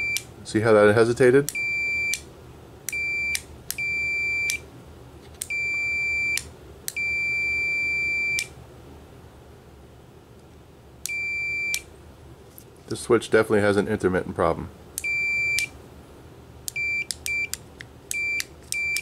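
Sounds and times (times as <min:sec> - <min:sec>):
multimeter continuity beeps: 0:00.0 - 0:00.3, 0:01.5 - 0:02.2, 0:02.9 - 0:04.6, 0:05.4 - 0:08.5, 0:11.1 - 0:11.9, 0:15.0 - 0:15.8, 0:16.7 - 0:19.0.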